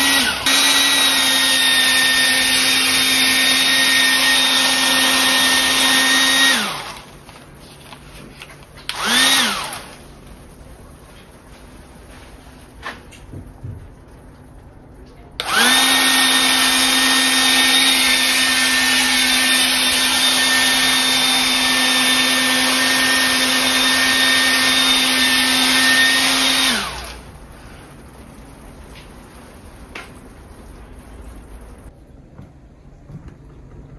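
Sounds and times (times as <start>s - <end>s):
bubble gun motor whirring: 0.0s - 7.1s, 8.9s - 10.0s, 15.4s - 27.3s.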